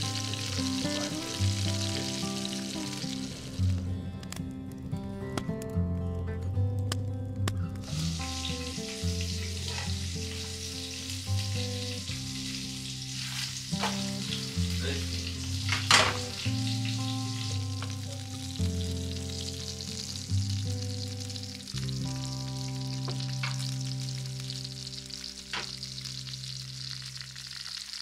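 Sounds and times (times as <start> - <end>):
batter sizzling in frying pan: 0.0 - 3.8, 7.8 - 28.0
metal utensils clinking: 15.7 - 16.4.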